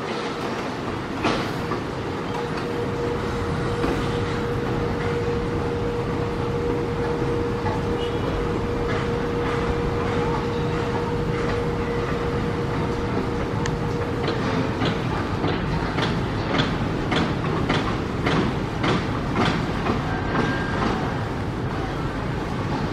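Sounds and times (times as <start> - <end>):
train wheels clacking on rails: 0.0 - 22.9
mechanical rumble with hum: 2.4 - 18.2.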